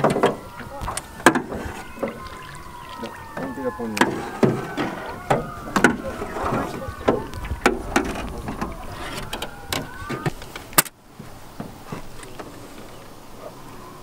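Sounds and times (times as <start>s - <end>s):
paddles knocking on metal boat: 0.0s - 10.6s
water washing: 0.0s - 14.0s.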